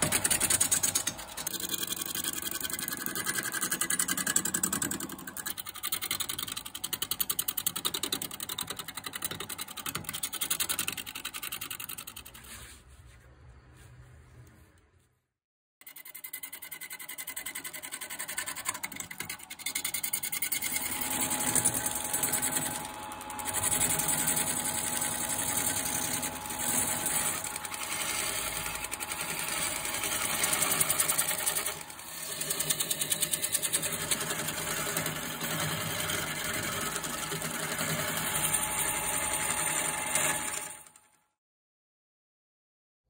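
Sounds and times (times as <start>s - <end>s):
lathe motor hum: 20.5s - 40.9s.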